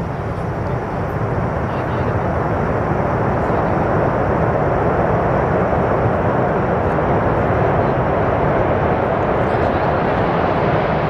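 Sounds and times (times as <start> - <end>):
jet engines roaring at takeoff: 0.0 - 11.0.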